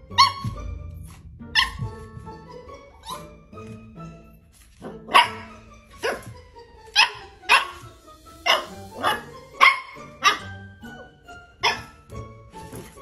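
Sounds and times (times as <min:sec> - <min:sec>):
puppy barking high-pitched: 0:00.1 - 0:00.6, 0:01.5 - 0:01.9, 0:04.8 - 0:12.1.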